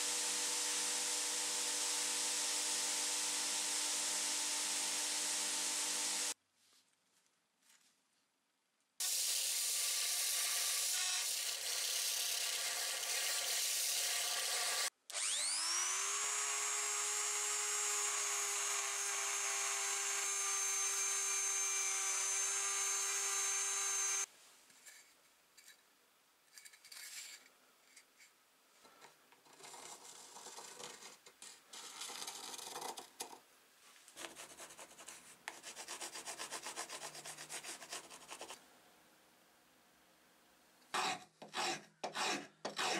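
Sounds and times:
rotary tool whining: 0:09.4 - 0:24.3
pencil scratching on wood: 0:34.2 - 0:38.6, 0:40.9 - 0:42.9.

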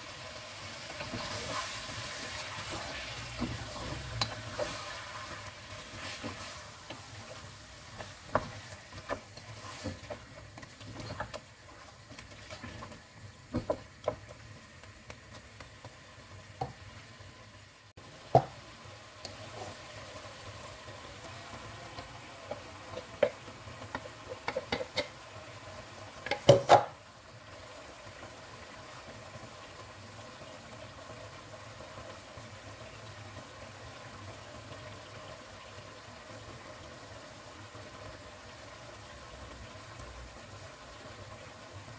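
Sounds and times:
meat sizzling in a pot: 0:00.0 - 0:41.9
wooden spoon knocking on pot: 0:13.5 - 0:14.4, 0:18.3 - 0:18.6, 0:23.2 - 0:25.2.

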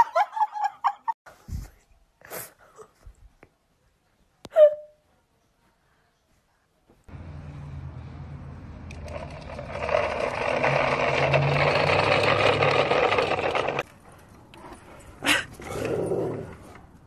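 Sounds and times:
wheels rolling on asphalt: 0:07.1 - 0:15.2
toy truck motor whirring: 0:08.8 - 0:13.9.

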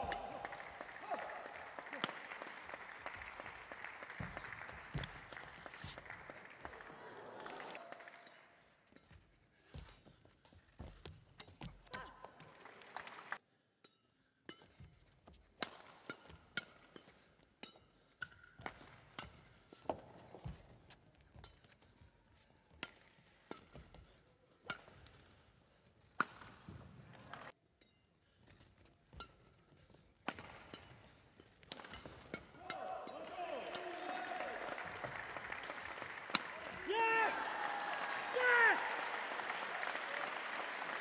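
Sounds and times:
rackets hitting shuttlecock: 0:14.5 - 0:22.1, 0:22.7 - 0:38.5.

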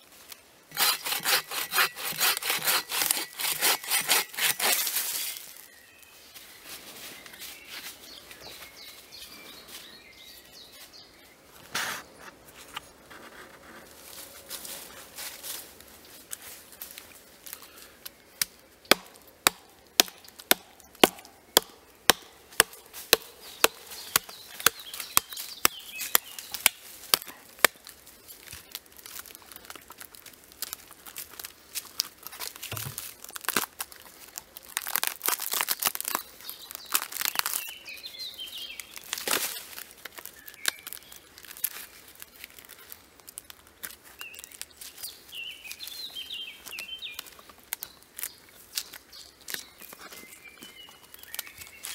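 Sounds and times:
hatchet striking log: 0:00.7 - 0:04.8, 0:18.4 - 0:27.8
bark tearing and crackling: 0:00.7 - 0:05.4, 0:18.4 - 0:37.8, 0:38.7 - 0:45.1.

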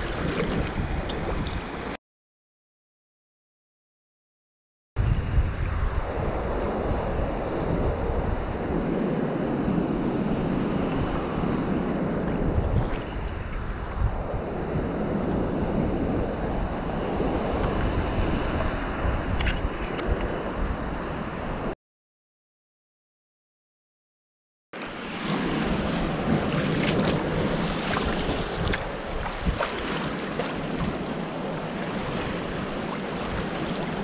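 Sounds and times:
water slapping kayak hull: 0:00.0 - 0:01.9, 0:25.2 - 0:34.0
wind buffeting microphone: 0:00.0 - 0:02.0, 0:05.0 - 0:21.7, 0:25.2 - 0:34.0.

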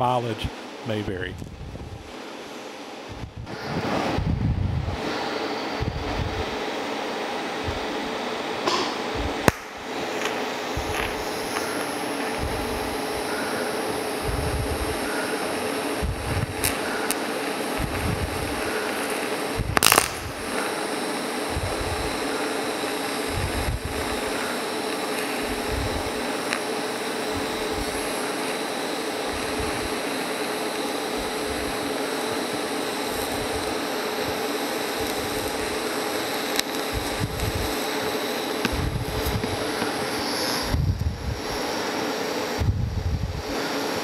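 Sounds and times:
steady hum: 0:00.0 - 0:44.0
welding arc hissing: 0:00.0 - 0:44.0
sharp crack: 0:08.6 - 0:10.4, 0:18.6 - 0:20.7.

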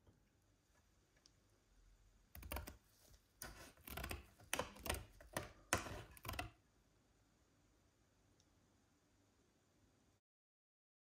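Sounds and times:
scissors snipping plastic: 0:03.4 - 0:06.5.

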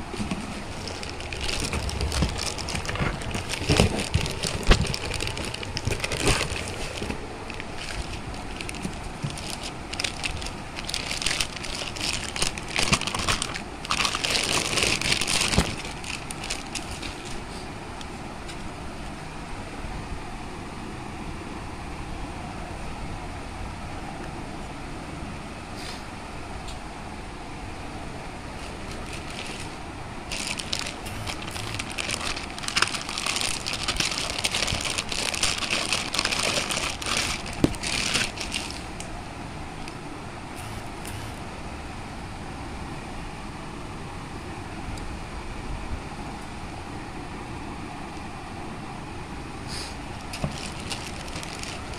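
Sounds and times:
cardboard box handled: 0:00.0 - 0:17.5, 0:28.6 - 0:39.0
plastic bags crinkling: 0:00.0 - 0:17.6, 0:28.6 - 0:39.1, 0:50.1 - 0:51.9.

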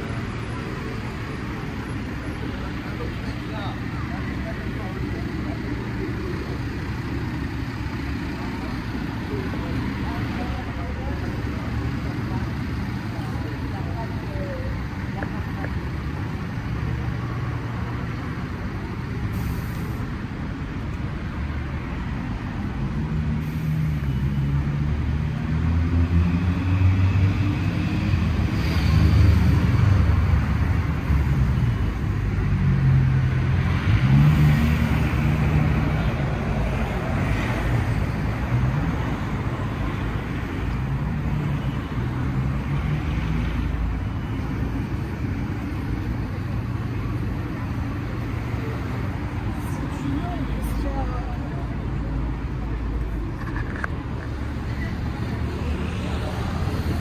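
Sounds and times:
steady traffic noise: 0:00.0 - 0:57.0
vehicles passing: 0:00.0 - 0:57.0.

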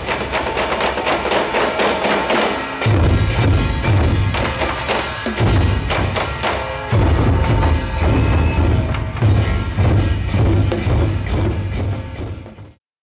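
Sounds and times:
barrel drums knocking rhythm: 0:00.0 - 0:12.8
deep drum booms: 0:06.9 - 0:12.8.

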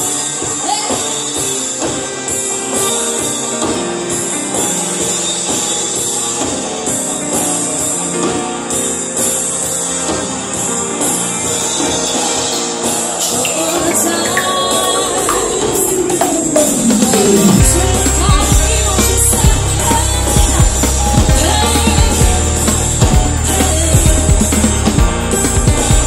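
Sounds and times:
drums with steady beat: 0:00.0 - 0:26.0
guitar: 0:00.0 - 0:26.0
keyboard: 0:00.0 - 0:26.0
woman singing into a microphone: 0:11.6 - 0:26.0
tambourine-like shimmer: 0:16.8 - 0:26.0.

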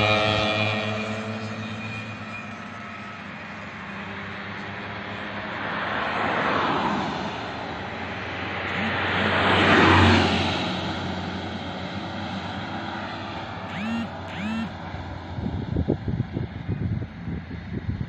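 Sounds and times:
small truck driving past: 0:00.0 - 0:16.0
car driving past: 0:05.6 - 0:14.7.

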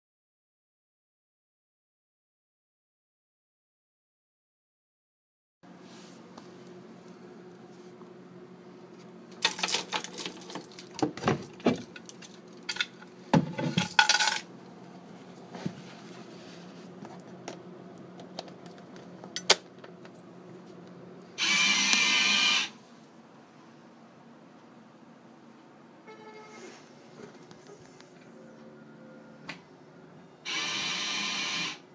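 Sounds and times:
keys and locks rattling: 0:09.4 - 0:13.0, 0:13.6 - 0:14.4
loud steady tone: 0:26.0 - 0:27.0, 0:28.1 - 0:31.9.

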